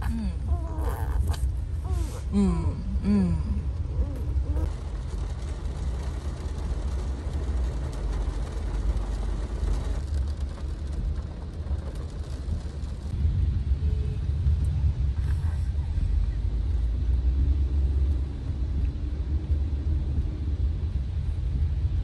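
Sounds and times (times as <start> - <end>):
baby crying: 0.5 - 2.2
rain on a car: 2.9 - 22.0.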